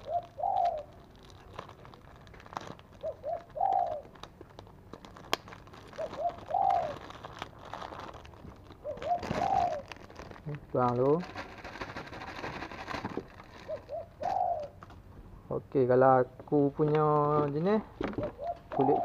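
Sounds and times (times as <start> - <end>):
dove cooing: 0.0 - 1.0, 3.0 - 4.2, 5.9 - 7.2, 8.8 - 10.1, 13.0 - 14.9, 17.4 - 19.0
plastic bag crinkling: 0.0 - 14.3.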